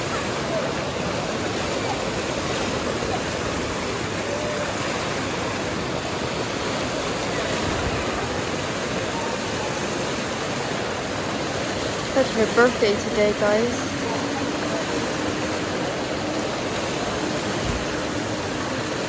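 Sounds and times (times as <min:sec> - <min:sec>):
fountain water splashing: 0:00.0 - 0:19.0.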